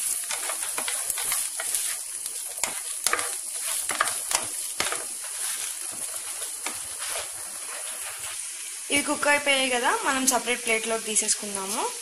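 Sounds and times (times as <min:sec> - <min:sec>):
wooden spatula scraping a pan: 0:00.0 - 0:08.6
vegetables sizzling in hot oil: 0:00.0 - 0:12.0.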